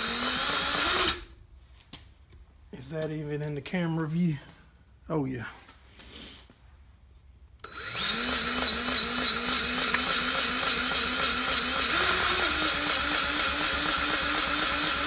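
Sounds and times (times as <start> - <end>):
cordless grease gun pulsing: 7.6 - 15.0.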